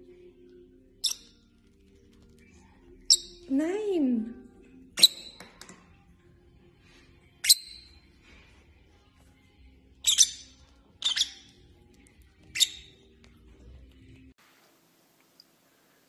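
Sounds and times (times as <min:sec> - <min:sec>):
birds chirping high-pitched: 0:01.0 - 0:01.5, 0:03.0 - 0:03.5, 0:05.0 - 0:05.4, 0:07.4 - 0:08.1, 0:10.0 - 0:13.2.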